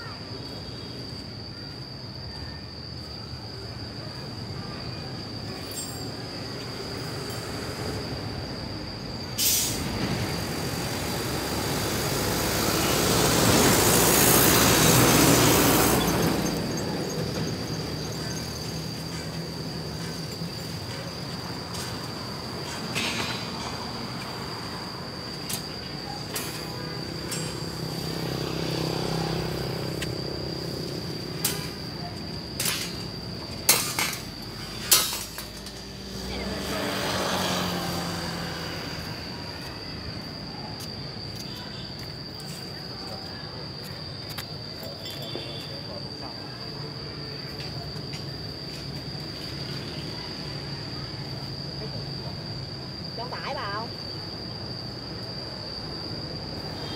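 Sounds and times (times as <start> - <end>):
sharp hiss: 6.3 - 36.1
truck driving past: 9.5 - 20.2, 35.9 - 40.1
motorbike engine passing: 27.0 - 31.8, 35.8 - 39.6
metallic clinks of steel rebar: 33.6 - 35.9.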